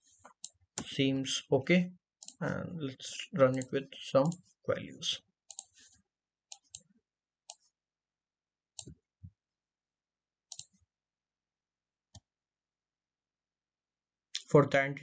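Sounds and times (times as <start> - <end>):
computer mouse clicks: 5.5 - 5.8, 10.5 - 10.8.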